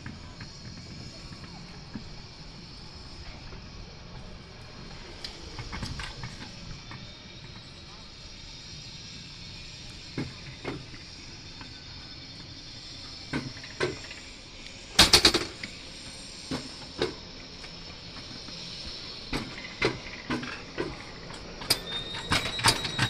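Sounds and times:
thin steady whine: 0.0 - 23.0
coaster cart clacking on metal track: 15.0 - 15.8, 19.3 - 23.0.

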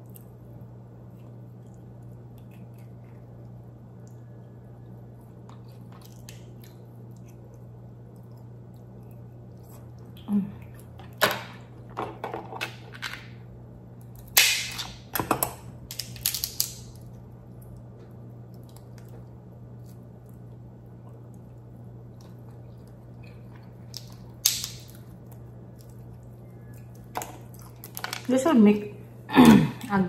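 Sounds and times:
crab shell cracking: 14.0 - 15.1, 15.8 - 20.5, 22.1 - 26.2.

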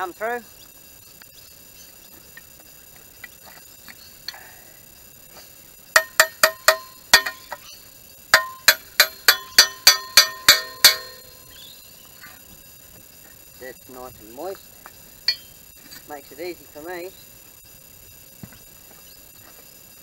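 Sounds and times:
hammer striking metal tool: 6.0 - 7.6, 8.4 - 11.4, 15.3 - 15.5.

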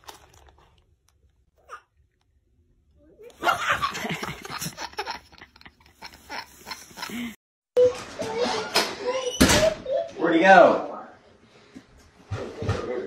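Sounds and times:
toddler laughing: 3.2 - 10.2.

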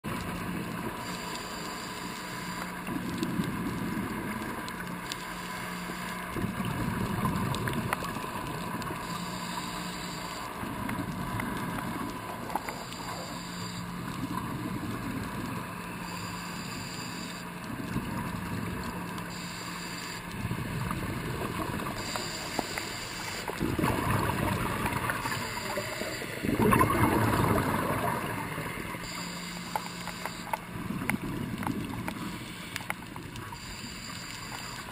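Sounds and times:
regulator bubbles rumbling: 6.3 - 9.1, 10.5 - 16.3, 20.3 - 34.9
regulator hiss: 12.7 - 13.9, 16.0 - 17.5, 19.3 - 20.3, 22.0 - 23.6, 24.9 - 26.6, 28.6 - 30.6, 32.2 - 32.9, 33.5 - 34.9.

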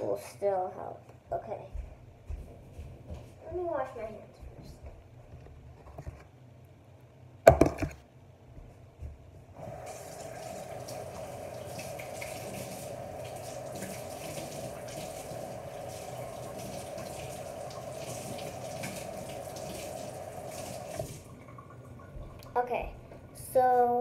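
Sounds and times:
tap water running over hands: 9.6 - 23.3.

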